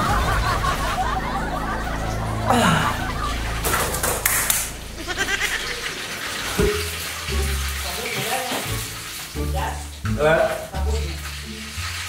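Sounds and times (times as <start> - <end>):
burst of noise: 0.0 - 7.9.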